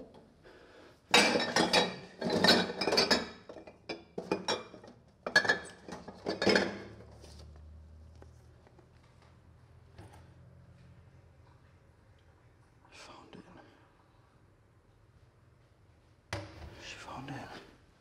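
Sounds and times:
dishes and glassware clattering: 1.1 - 7.1.

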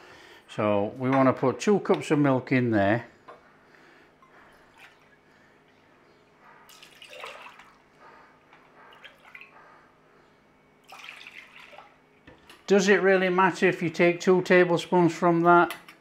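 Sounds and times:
milk pouring and splashing: 4.5 - 5.2, 6.7 - 8.0, 8.9 - 9.5, 10.8 - 12.0.

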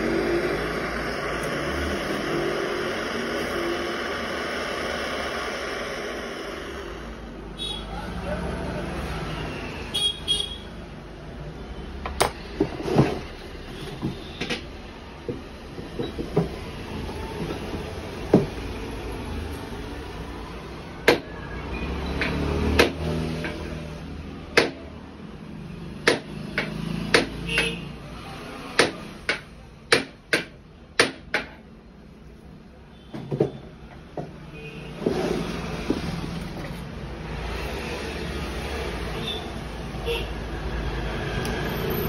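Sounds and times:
sharp knocks and clicks: 21.0 - 21.3, 22.2 - 23.7, 24.5 - 24.9, 26.0 - 27.8, 28.7 - 31.7.

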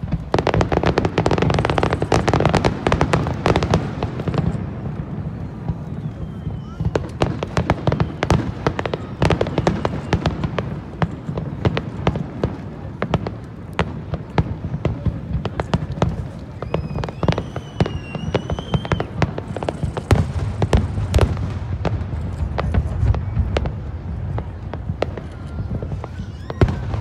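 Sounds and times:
high firework whistle: 0.0 - 10.8, 16.1 - 22.0, 22.6 - 27.0
fireworks bursts and crackling: 0.0 - 27.0.

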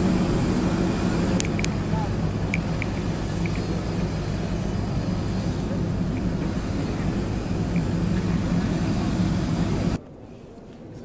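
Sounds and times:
aircraft drone: 0.0 - 10.0
people talking: 0.0 - 11.0
sharp clicks: 1.4 - 1.8, 2.5 - 3.8.

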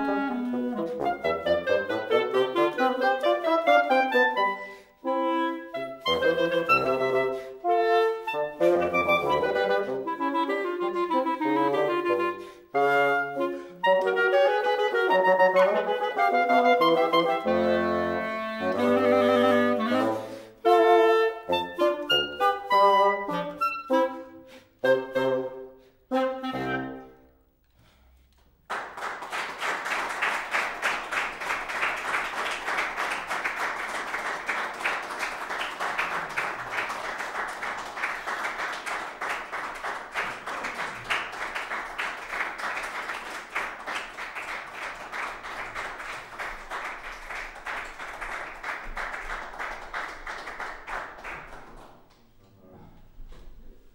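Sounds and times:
clarinet and bassoon chords: 0.0 - 27.4
audience applauding: 28.6 - 52.3.

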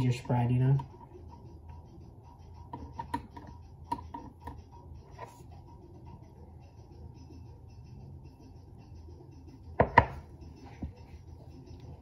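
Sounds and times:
utensil tapping and scraping: 2.7 - 5.4.

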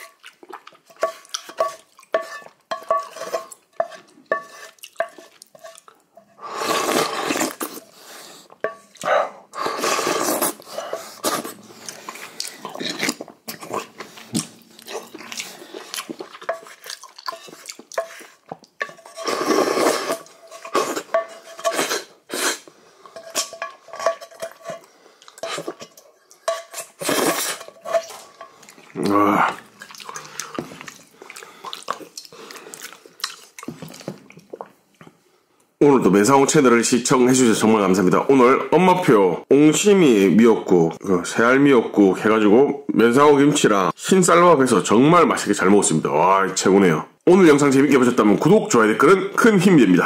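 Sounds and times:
slurping broth: 3.1 - 34.5.

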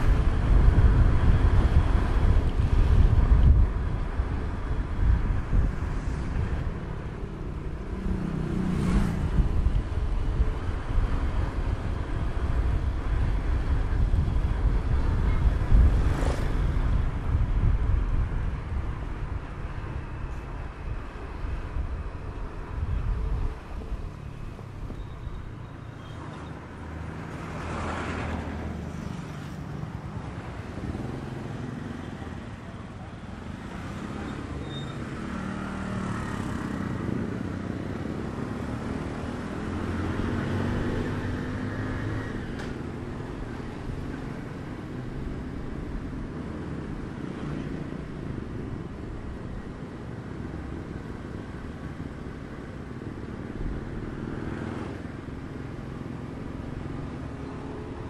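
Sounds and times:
road noise: 0.0 - 58.0.

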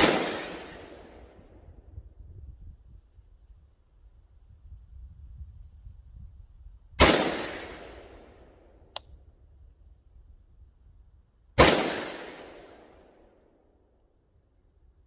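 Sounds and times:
rifle shots with echoing tail: 0.0 - 1.6, 7.0 - 8.6, 11.6 - 13.3
light click: 8.9 - 9.2.

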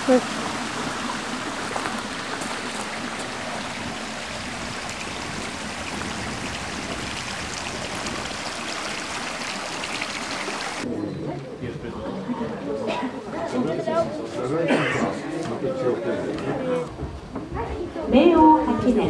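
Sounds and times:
stream flowing over rocks: 0.0 - 10.8.

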